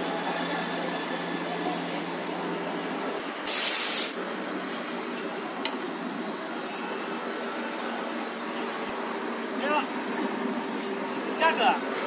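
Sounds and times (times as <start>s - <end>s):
workshop machinery running: 0.0s - 12.0s
short loud hiss: 3.4s - 4.2s.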